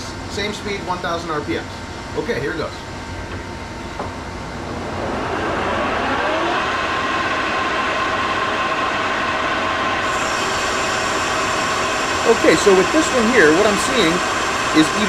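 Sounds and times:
lathe spindle whine: 0:03.9 - 0:15.0.

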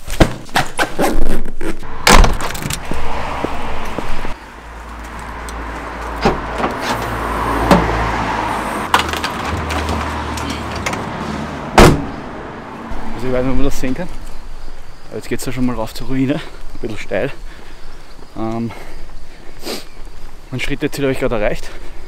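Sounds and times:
car driving hum: 0:01.8 - 0:20.5
car door being handled: 0:11.8 - 0:12.2.

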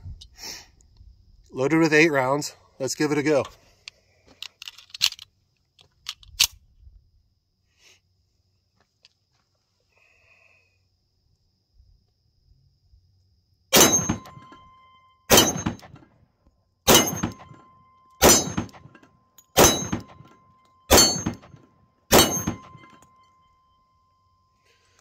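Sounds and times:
pistol shots: 0:13.8 - 0:14.6, 0:15.3 - 0:16.0, 0:16.9 - 0:19.0, 0:19.6 - 0:20.3, 0:20.9 - 0:23.0.

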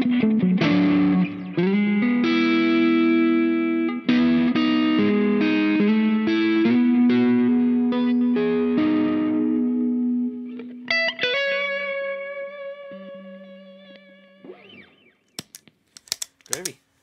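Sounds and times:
overdriven electric guitar lead notes: 0:00.0 - 0:15.2.

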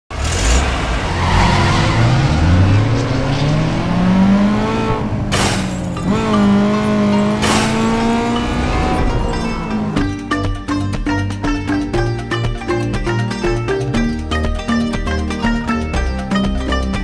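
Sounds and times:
car engine revving: 0:00.1 - 0:10.2.

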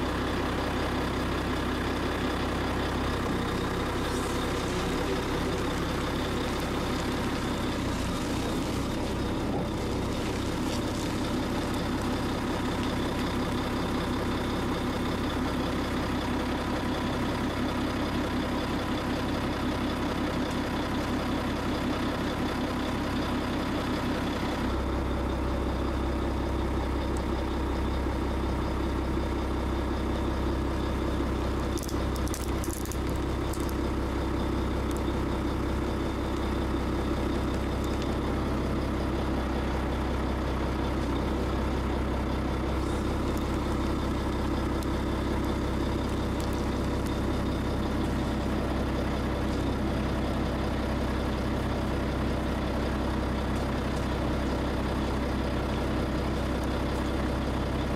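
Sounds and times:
heavy machine engine idling: 0:00.0 - 0:57.9
toy car cracking: 0:31.8 - 0:33.8.

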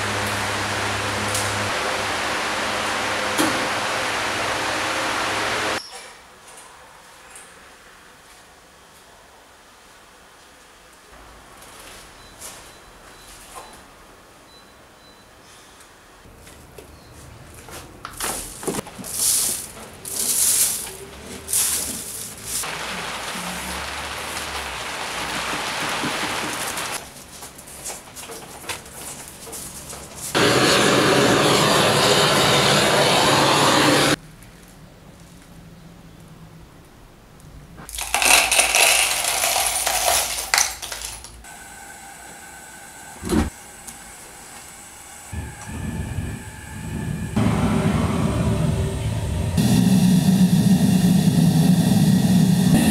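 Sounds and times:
steady hum: 0:00.0 - 0:05.8, 0:30.4 - 0:34.2, 0:42.7 - 0:52.9
sand pouring off shovel: 0:19.0 - 0:27.0
metal scrap rattling in plastic cup: 0:37.9 - 0:41.2.

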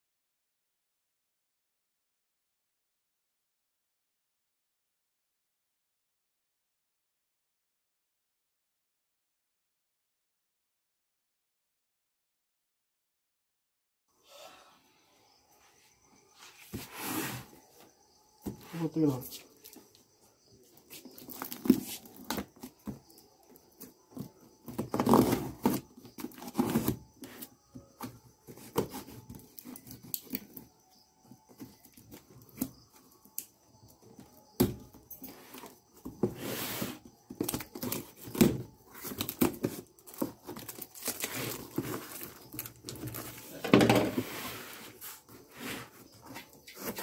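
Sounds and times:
tape tearing off cardboard: 0:24.8 - 0:27.0.

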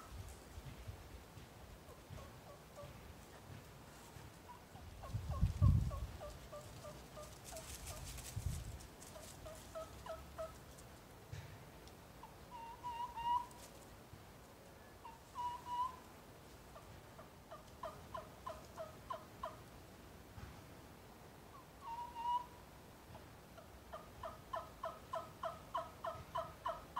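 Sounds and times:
turkey call yelps: 0:12.2 - 0:13.6, 0:15.0 - 0:16.1, 0:17.5 - 0:19.6, 0:21.5 - 0:22.6, 0:23.6 - 0:26.9.

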